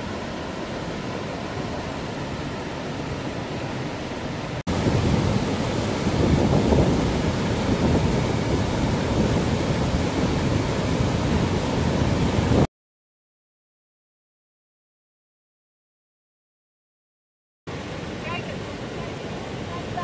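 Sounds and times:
waterfall rushing: 0:00.0 - 0:12.7, 0:17.7 - 0:20.0.

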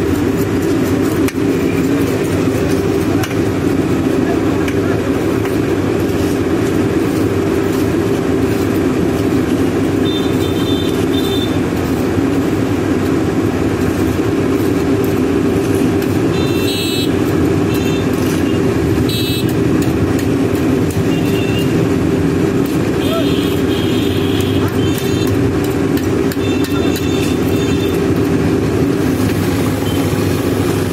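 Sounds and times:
diesel engine running: 0:00.0 - 0:30.9
car horn toots: 0:16.4 - 0:17.2, 0:19.1 - 0:19.6.

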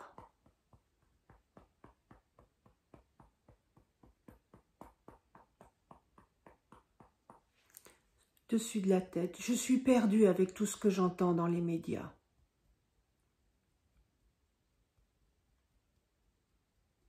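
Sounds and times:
fingertip tapping on body: 0:00.0 - 0:08.0.

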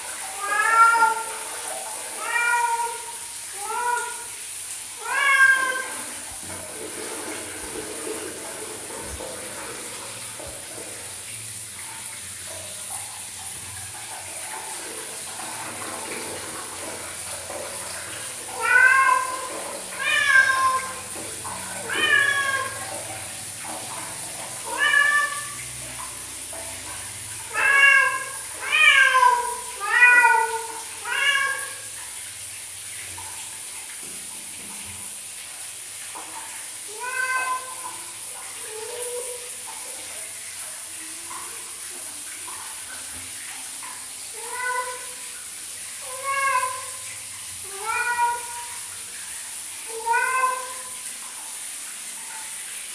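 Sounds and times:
cat meowing loudly: 0:00.4 - 0:01.3, 0:05.0 - 0:06.0, 0:18.6 - 0:21.0, 0:21.8 - 0:22.9, 0:24.6 - 0:25.6, 0:36.9 - 0:37.8, 0:47.7 - 0:48.7, 0:49.9 - 0:51.0.

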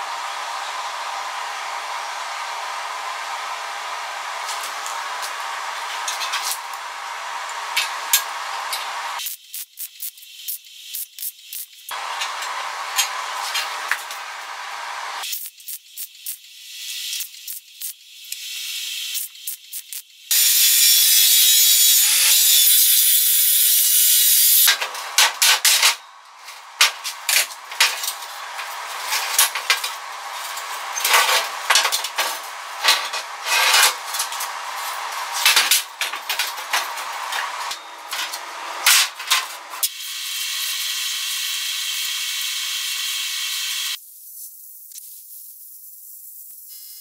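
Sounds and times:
arc welding hiss: 0:00.0 - 0:47.0
metal scraping and rubbing: 0:04.4 - 0:09.2, 0:12.0 - 0:15.2, 0:24.0 - 0:39.8.

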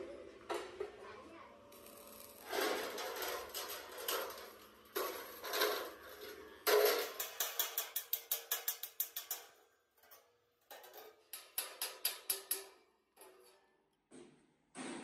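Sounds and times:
hammer tapping steel panel: 0:06.7 - 0:09.6.

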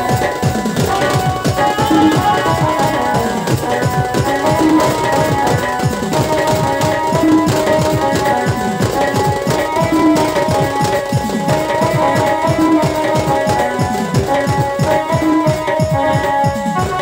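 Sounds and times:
fast hand drumming: 0:00.0 - 0:17.0.

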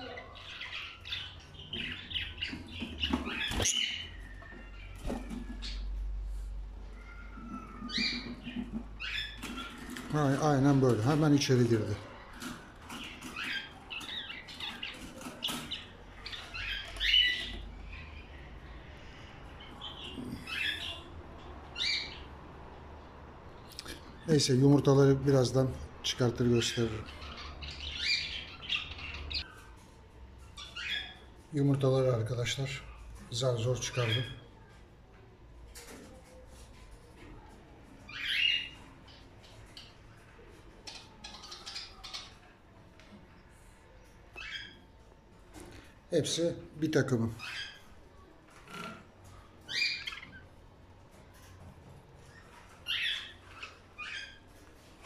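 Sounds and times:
budgerigars chirping and squawking: 0:00.0 - 0:06.0, 0:07.0 - 0:18.4, 0:19.6 - 0:21.1, 0:21.7 - 0:22.3, 0:26.2 - 0:29.8, 0:30.5 - 0:34.4, 0:38.1 - 0:39.9, 0:40.8 - 0:42.4, 0:44.4 - 0:44.9, 0:47.3 - 0:47.9, 0:49.7 - 0:50.5, 0:52.3 - 0:54.6.

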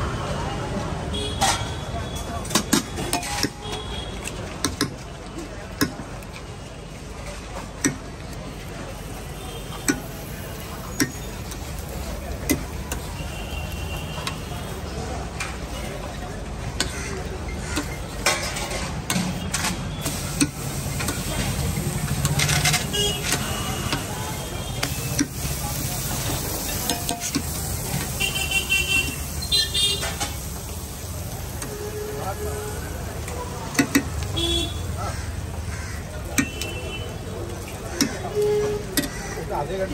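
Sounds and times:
street traffic rumble: 0:00.0 - 0:39.9
vehicle horns honking: 0:01.1 - 0:04.3, 0:12.9 - 0:14.9, 0:22.4 - 0:25.4, 0:28.0 - 0:30.4, 0:31.6 - 0:33.1, 0:34.2 - 0:35.0, 0:36.3 - 0:37.4
food sizzling on a griddle: 0:08.9 - 0:15.6, 0:20.0 - 0:33.2
metal spatula scraping griddle: 0:22.1 - 0:23.6.

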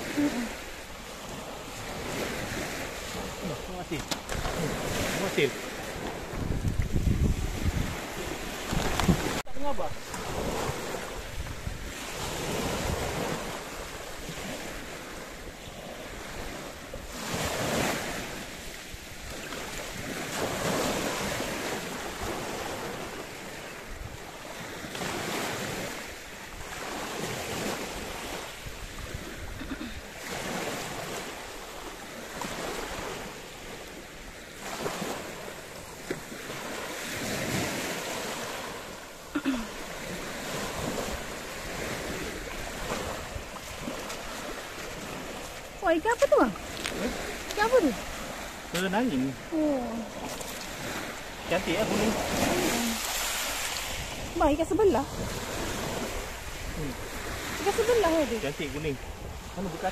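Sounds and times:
small waves breaking on shore: 0:00.0 - 0:59.9
wind on microphone: 0:04.2 - 0:26.0, 0:49.5 - 0:58.3, 0:58.9 - 0:59.9.

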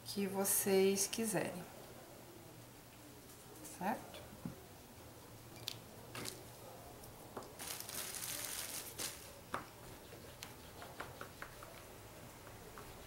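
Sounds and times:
crinkling rustle: 0:07.4 - 0:09.4.

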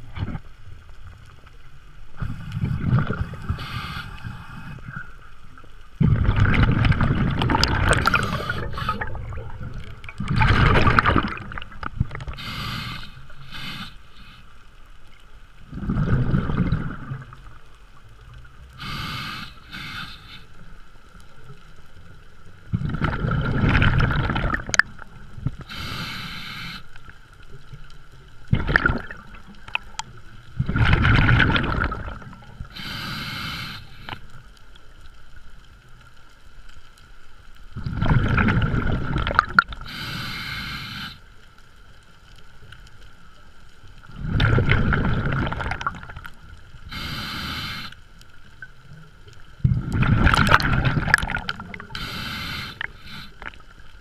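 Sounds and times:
diver breathing through regulator: 0:02.2 - 0:05.0, 0:07.6 - 0:09.2, 0:12.3 - 0:14.5, 0:18.8 - 0:20.6, 0:25.6 - 0:27.0, 0:32.6 - 0:34.2, 0:39.8 - 0:41.3, 0:46.8 - 0:48.0, 0:51.8 - 0:53.6
gurgling exhaled bubbles: 0:02.2 - 0:05.1, 0:06.0 - 0:14.0, 0:15.7 - 0:17.6, 0:22.7 - 0:26.3, 0:28.5 - 0:34.2, 0:37.8 - 0:40.8, 0:44.0 - 0:47.9, 0:49.5 - 0:53.7.

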